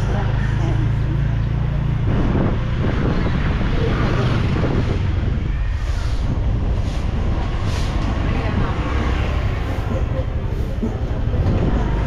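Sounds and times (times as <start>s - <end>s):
wind buffeting the microphone: 1.1s - 10.0s.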